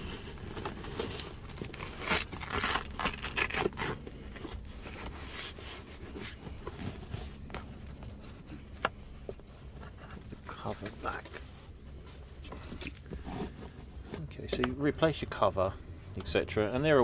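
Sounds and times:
velcro tearing: 0:00.0 - 0:04.0
fabric rubbing and rustling: 0:00.0 - 0:14.4.

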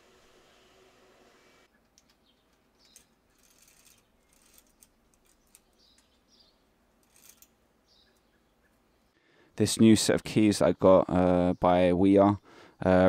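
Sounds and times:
faint bird chirps: 0:01.7 - 0:09.3
bicycle chain clicking and clinking: 0:02.9 - 0:05.7, 0:07.0 - 0:07.5.

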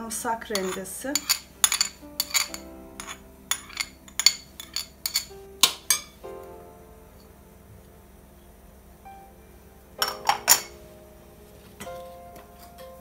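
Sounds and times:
cutlery clinking on dishes: 0:00.6 - 0:06.2, 0:10.0 - 0:10.8.

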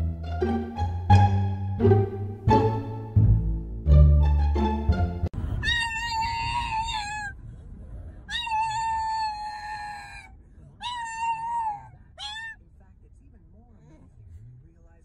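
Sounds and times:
dog whining: 0:05.6 - 0:07.4, 0:08.3 - 0:12.6.

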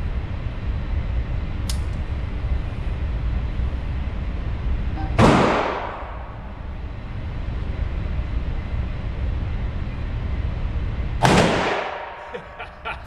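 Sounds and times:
steady low rumble: 0:00.0 - 0:13.0
sharp click: 0:01.6 - 0:02.0
gunshot with echo: 0:05.2 - 0:06.2, 0:11.2 - 0:12.2.

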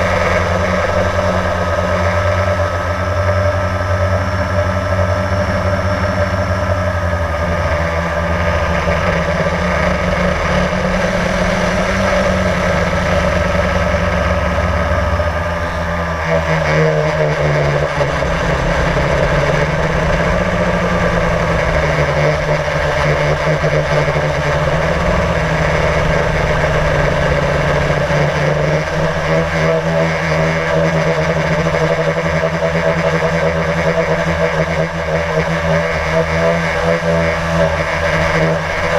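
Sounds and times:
drone propellers humming: 0:00.0 - 0:38.9.

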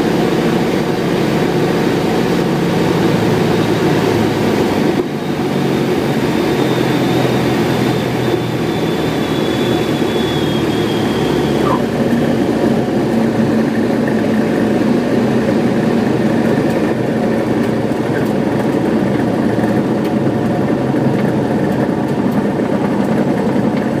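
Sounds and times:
propeller plane engine idling: 0:00.0 - 0:24.0
brief falling squeak: 0:08.7 - 0:11.9.

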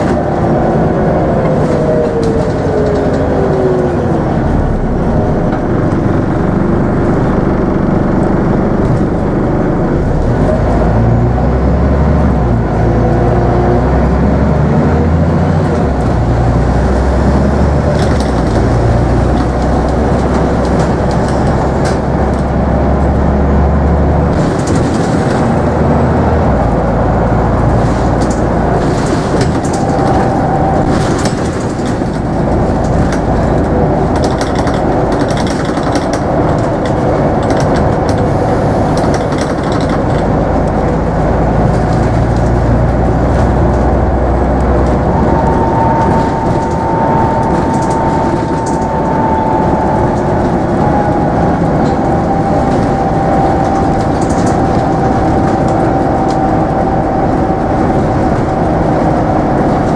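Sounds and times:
bus diesel engine running: 0:00.0 - 0:59.9
interior rattles and clicks: 0:00.0 - 0:59.9
driveline whine: 0:40.3 - 0:59.9.

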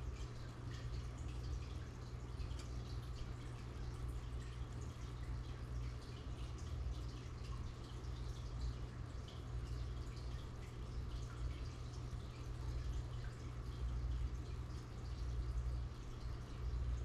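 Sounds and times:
pump humming: 0:00.0 - 0:17.0
small splashes and bubble ticks: 0:00.0 - 0:17.0
water trickling and dripping: 0:00.0 - 0:17.0.

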